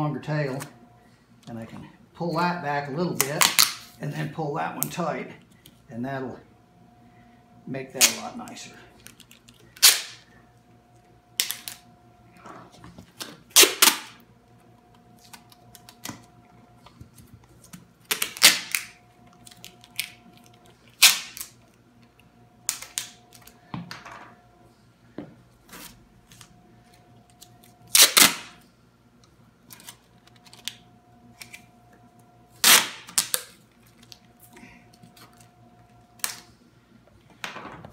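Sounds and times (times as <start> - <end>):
adhesive tape pulled and torn: 21.0 - 21.6, 27.9 - 28.6, 32.6 - 34.2, 36.2 - 36.4.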